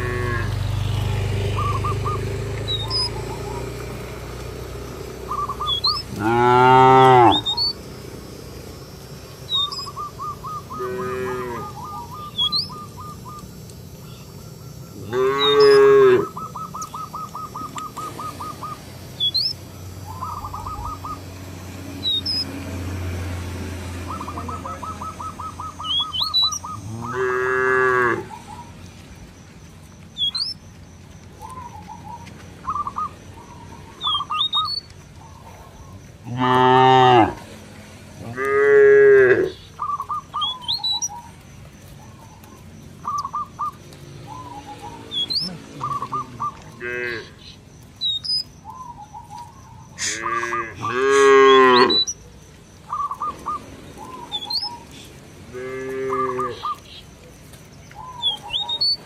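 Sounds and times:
cows mooing: 0:00.0 - 0:08.0, 0:09.4 - 0:13.2, 0:14.9 - 0:18.8, 0:19.9 - 0:28.5, 0:36.2 - 0:40.5, 0:44.5 - 0:47.5, 0:50.0 - 0:52.1, 0:54.2 - 0:56.8.

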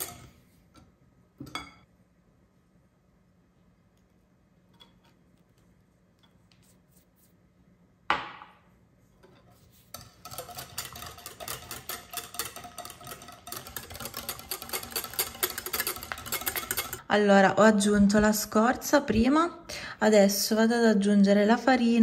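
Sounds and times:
whisk stirring batter in bowl: 0:09.2 - 0:17.0.

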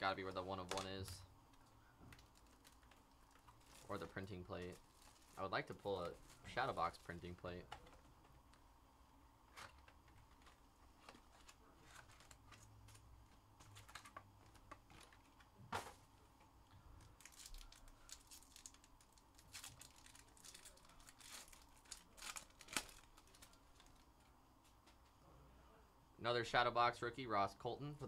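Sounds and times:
foil wrapper crinkling and tearing: 0:02.1 - 0:07.3, 0:17.0 - 0:24.1.

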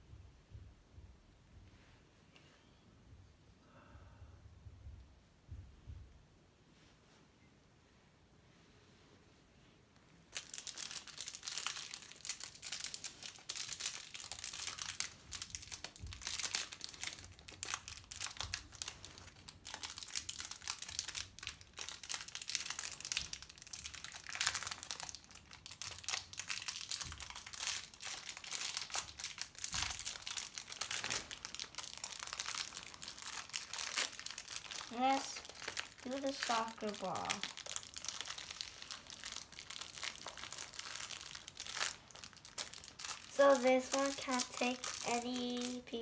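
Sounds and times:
plastic bag crinkling: 0:10.3 - 0:46.0.

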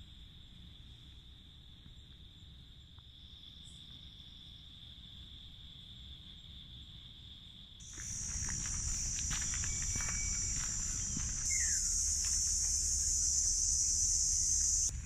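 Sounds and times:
crickets chirring: 0:02.0 - 0:15.0
high-pitched insect drone: 0:07.8 - 0:14.9.

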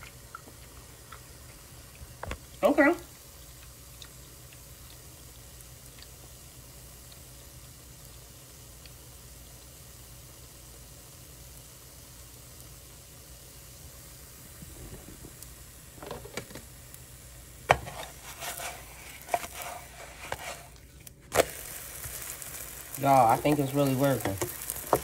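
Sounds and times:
batter sizzling in frying pan: 0:00.0 - 0:25.0.

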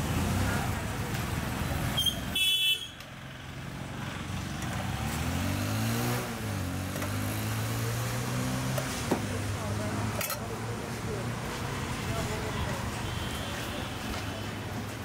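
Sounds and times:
vehicle engine revving: 0:04.2 - 0:09.1.

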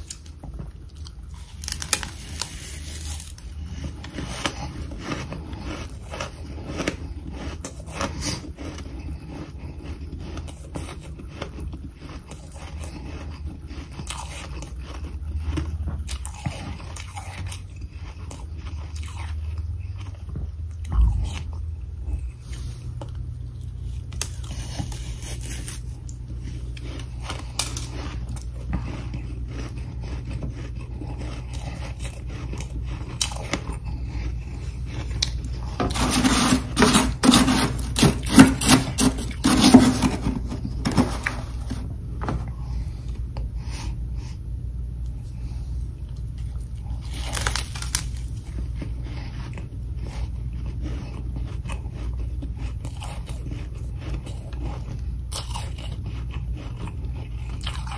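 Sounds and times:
frost being chewed: 0:00.0 - 0:57.9
low steady hum: 0:00.0 - 0:57.9
spoon scraping frost: 0:01.4 - 0:15.0, 0:24.2 - 0:41.8.

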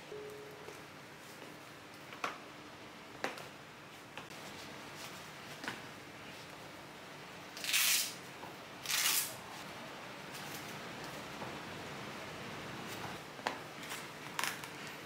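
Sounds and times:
hook-and-loop strap ripping: 0:07.6 - 0:08.2, 0:08.8 - 0:09.3.

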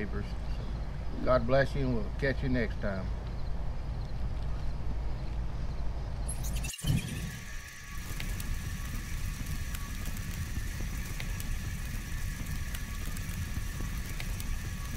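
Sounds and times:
flames rumbling and crackling: 0:06.3 - 0:14.9.

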